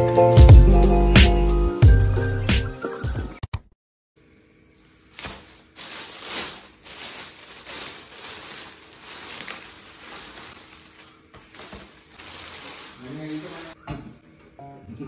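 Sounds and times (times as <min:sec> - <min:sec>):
plastic bag rustling: 0:04.2 - 0:13.8.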